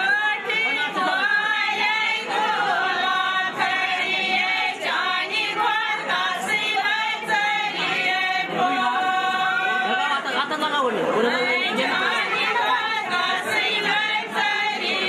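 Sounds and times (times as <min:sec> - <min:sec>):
women singing together: 0:00.0 - 0:15.0.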